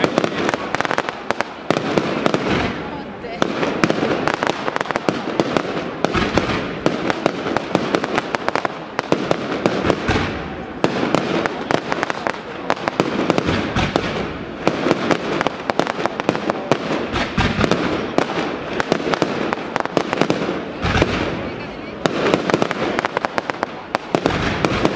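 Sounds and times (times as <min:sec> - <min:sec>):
fireworks bangs and crackles: 0:00.0 - 0:24.9.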